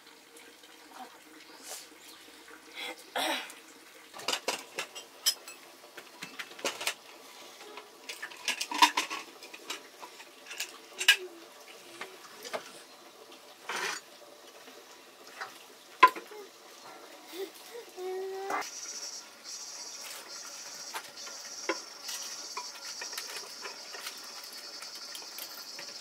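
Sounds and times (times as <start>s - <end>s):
pots and dishes clinking: 4.2s - 11.4s, 13.6s - 14.1s, 15.3s - 16.3s, 20.9s - 26.0s.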